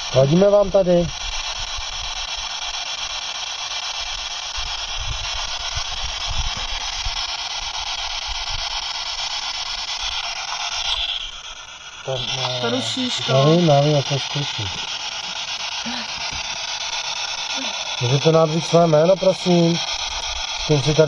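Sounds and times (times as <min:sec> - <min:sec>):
radio static hiss: 0:09.7 - 0:21.0.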